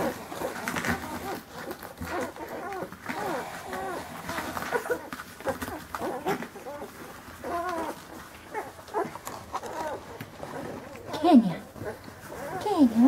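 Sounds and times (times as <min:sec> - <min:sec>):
puppies whimpering and squeaking: 0:00.0 - 0:13.0.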